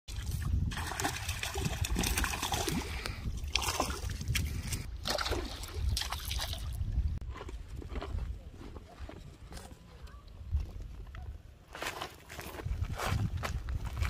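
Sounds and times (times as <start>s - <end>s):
water splashing from thrashing fish: 0.1s - 4.2s, 5.0s - 6.6s.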